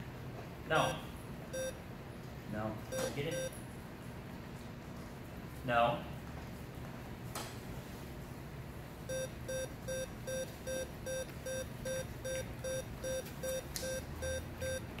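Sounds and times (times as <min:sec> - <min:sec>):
short even beeps: 0:01.6 - 0:01.8, 0:02.9 - 0:03.6, 0:09.1 - 0:14.9.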